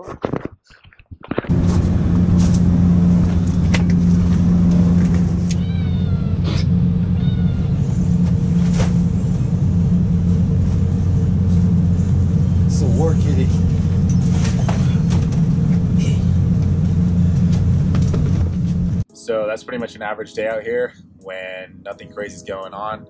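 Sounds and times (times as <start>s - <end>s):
low engine drone: 1.5s - 19.1s
cat meowing: 5.5s - 8.0s.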